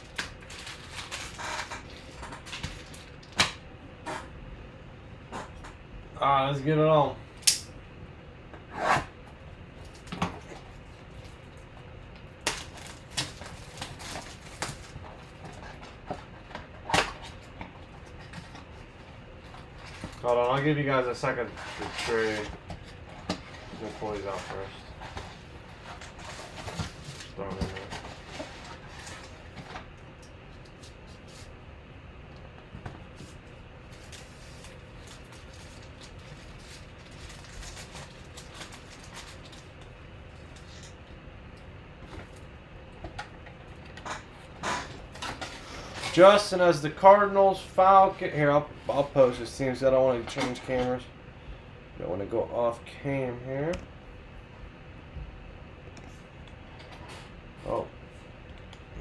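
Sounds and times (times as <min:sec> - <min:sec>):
plastic wrappers crinkling: 0:00.0 - 0:03.3, 0:33.9 - 0:41.0
steady low hum: 0:00.0 - 0:59.0.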